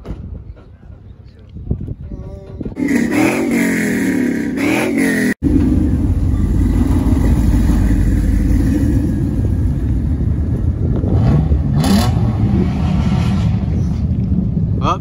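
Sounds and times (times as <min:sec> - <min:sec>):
truck engine rumbling: 0:00.0 - 0:15.0
engine revving: 0:02.8 - 0:14.0.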